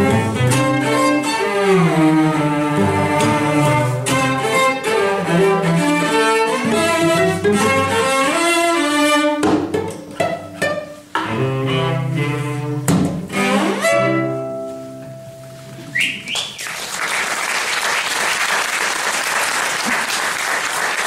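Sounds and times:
cello ensemble playing: 0.0s - 15.2s.

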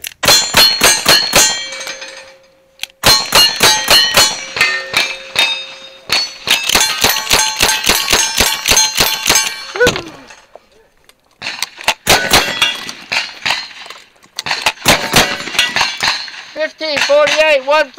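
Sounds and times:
rifle shots: 0.2s - 1.8s, 3.0s - 9.7s, 11.4s - 17.1s
steel targets ringing: 0.2s - 10.5s, 12.1s - 13.8s, 14.5s - 17.8s
revolver gunfire: 3.0s - 5.5s, 11.9s - 13.8s, 14.5s - 16.4s.

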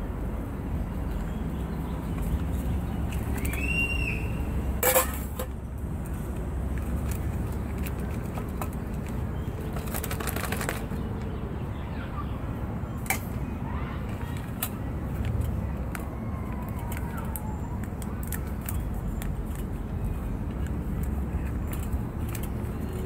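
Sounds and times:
low outdoor rumble: 0.0s - 23.0s
foil pouch crinkling: 7.1s - 11.1s.

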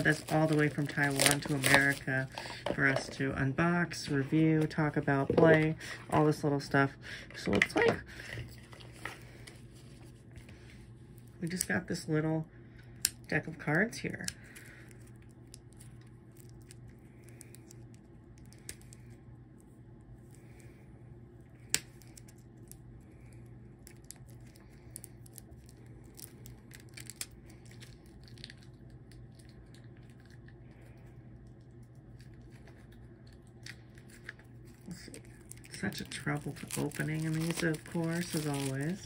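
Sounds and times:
plastic wrap crinkling and clicking: 0.0s - 3.2s, 23.8s - 39.0s
steady low hum: 0.0s - 39.0s.

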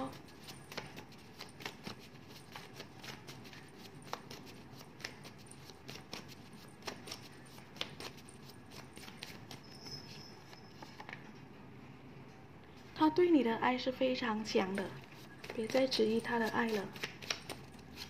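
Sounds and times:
cards clicking and rustling: 0.1s - 11.2s, 15.0s - 18.0s.

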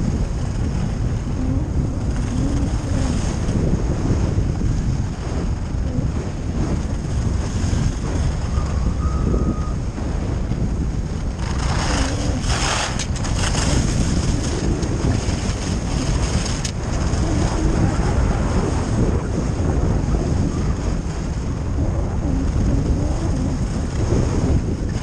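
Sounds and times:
wind buffeting microphone: 0.0s - 25.0s
skis hissing over snow: 11.4s - 14.8s.

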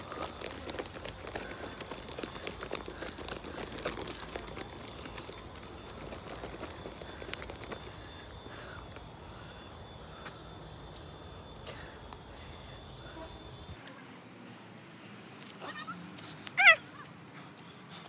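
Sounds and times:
footsteps on dirt trail: 0.0s - 11.1s
insects calling: 0.0s - 18.0s.

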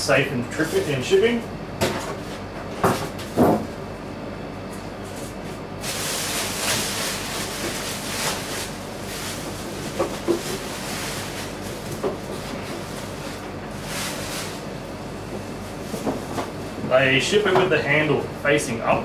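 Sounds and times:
plastic wrapping rustling: 5.8s - 14.7s.

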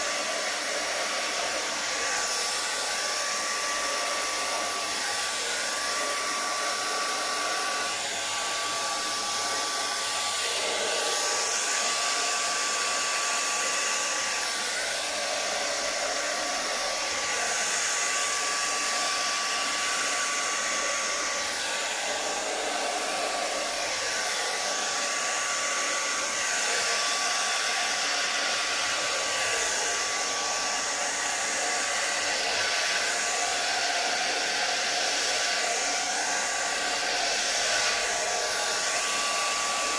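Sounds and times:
hair dryer running: 0.0s - 39.9s.

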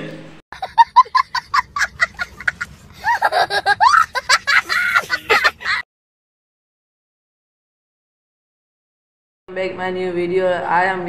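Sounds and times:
young child laughing: 0.6s - 5.8s.

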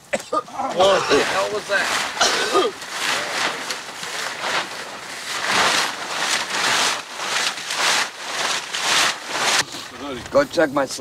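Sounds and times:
tarp and tent fabric rustling: 0.5s - 11.0s.

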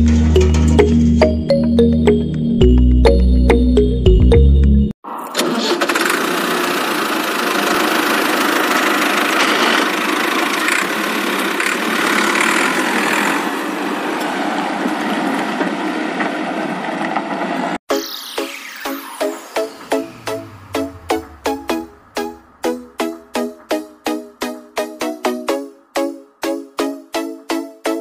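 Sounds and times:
music: 0.0s - 5.0s, 17.9s - 28.0s
toy electric motor and gears: 7.6s - 13.5s.

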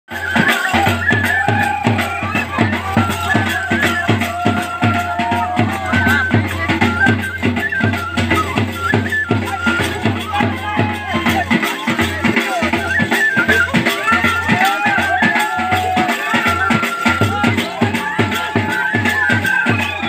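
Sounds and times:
fast drum beat: 0.1s - 20.0s.

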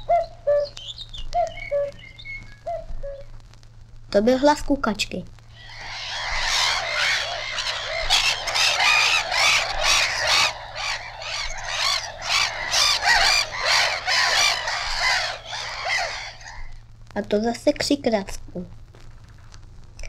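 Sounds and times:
gulls crying: 5.5s - 16.8s.

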